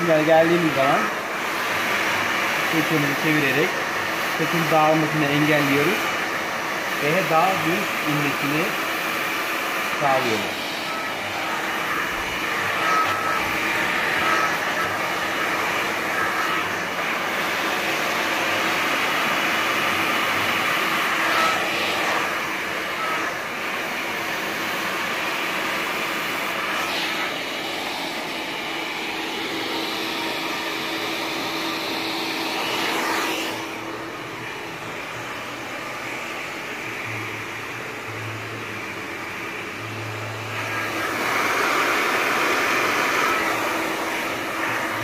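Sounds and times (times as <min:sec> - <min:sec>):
hair dryer blowing: 0:00.0 - 0:45.0.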